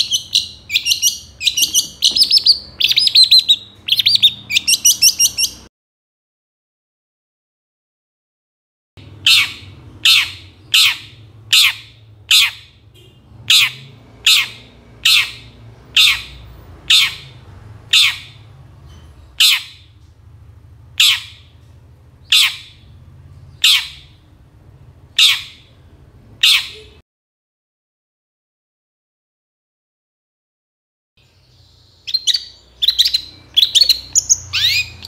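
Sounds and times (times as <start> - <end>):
bird giving harsh scratchy calls: 0.0 - 5.7, 32.1 - 35.0.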